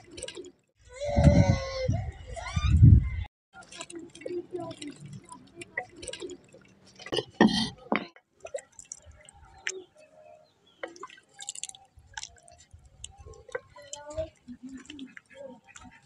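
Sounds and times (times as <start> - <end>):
thick curry dripping and splashing: 8.3 - 9.9, 10.6 - 16.0.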